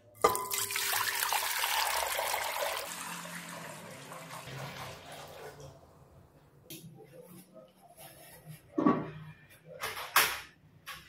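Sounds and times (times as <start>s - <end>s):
water pouring into a metal pot: 0.1s - 5.7s.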